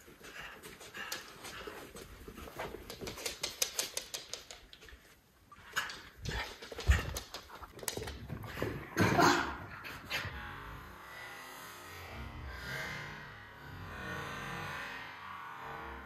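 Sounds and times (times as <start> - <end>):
dog claws clicking on hard floor: 0.3 - 5.1, 5.7 - 8.8.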